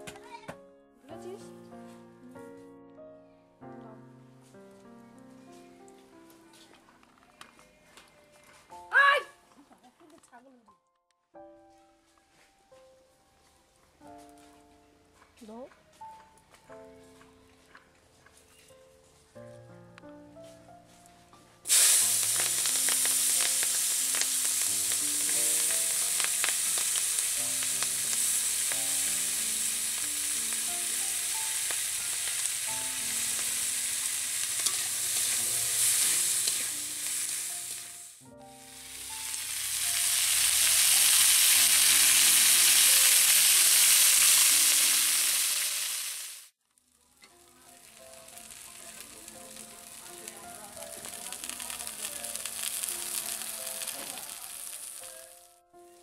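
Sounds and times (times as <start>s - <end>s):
onions sizzling in hot oil: 21.7s - 46.5s, 47.1s - 55.6s.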